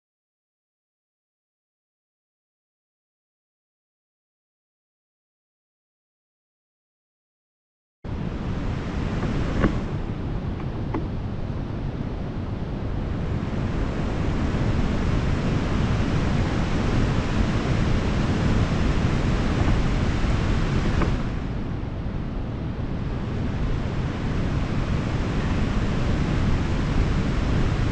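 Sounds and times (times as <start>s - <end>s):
wide river rushing: 8.1s - 12.1s, 13.0s - 21.8s, 23.0s - 27.9s
wind buffeting microphone: 8.1s - 27.9s.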